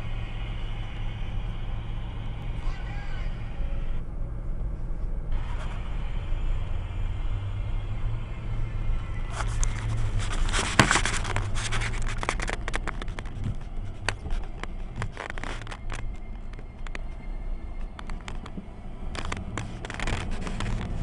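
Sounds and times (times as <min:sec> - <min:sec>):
engine running at low revs: 0:00.0 - 0:21.0
sharp clicks and scrapes: 0:09.2 - 0:21.0.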